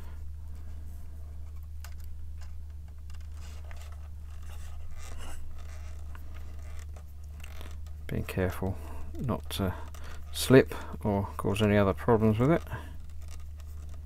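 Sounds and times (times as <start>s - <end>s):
steady low hum: 0.0s - 14.0s
screwdriver scratching on plastic: 3.1s - 8.5s, 12.2s - 14.0s.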